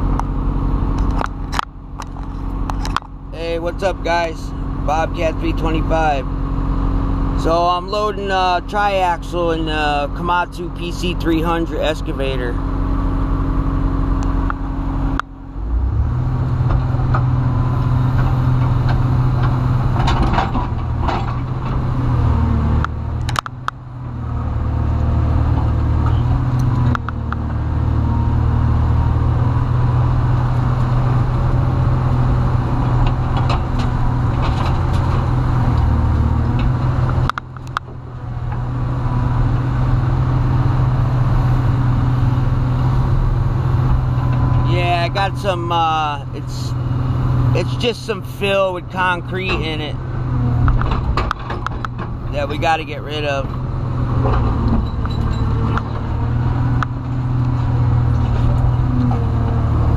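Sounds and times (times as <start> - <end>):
excavator diesel engine running: 0.0 - 59.9
knocks and clunks: 18.1 - 22.1, 32.8 - 38.6, 50.5 - 52.7, 53.5 - 59.6.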